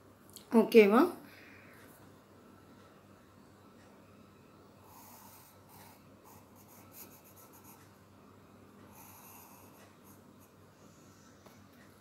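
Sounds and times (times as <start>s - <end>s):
pencil scratching on paper: 4.9s - 8.0s, 8.9s - 10.6s.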